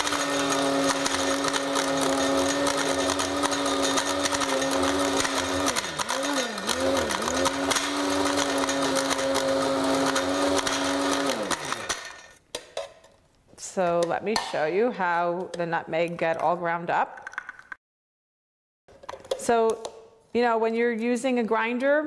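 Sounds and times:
electric grinder motor whine: 0.0s - 12.3s
nutmeg clattering in grinder: 0.0s - 12.3s.

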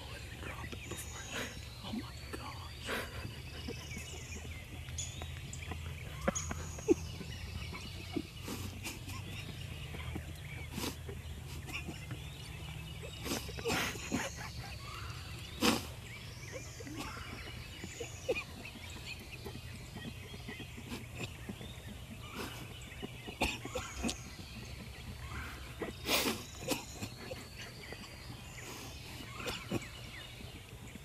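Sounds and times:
songbirds singing: 0.0s - 31.0s.

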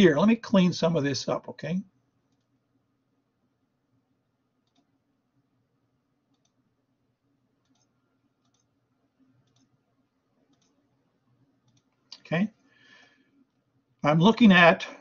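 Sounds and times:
faint mouse clicks: 2.3s - 2.6s, 4.6s - 5.0s, 6.3s - 6.6s, 7.6s - 9.8s, 10.4s - 10.9s, 11.6s - 12.3s.

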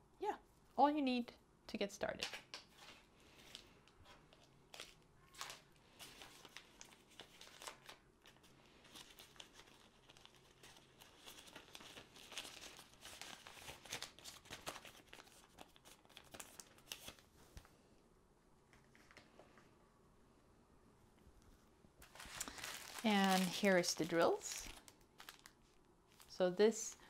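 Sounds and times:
plastic packaging crinkling: 2.6s - 17.3s, 22.0s - 26.4s.

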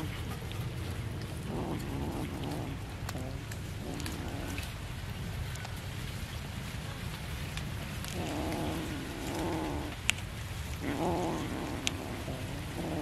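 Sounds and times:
cat growling while eating: 0.0s - 0.3s, 1.2s - 4.8s, 8.0s - 13.0s.

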